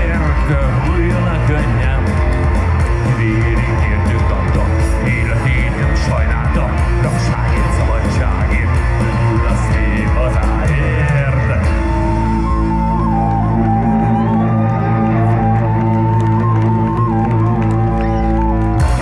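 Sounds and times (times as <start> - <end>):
live rock band playing: 0.0 - 19.0.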